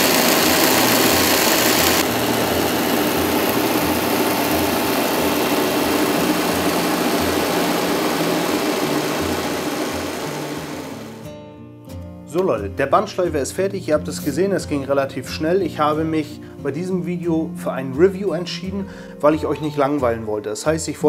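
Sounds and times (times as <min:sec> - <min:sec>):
sanding belt hissing: 0:00.0 - 0:11.2
electric motor running: 0:00.0 - 0:11.3.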